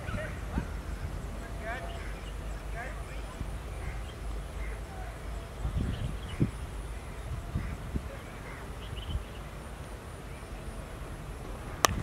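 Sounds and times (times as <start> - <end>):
faint bird chirps: 0.0 - 11.6
high insect-like whine: 0.0 - 12.0
low uneven rumble: 0.0 - 12.0.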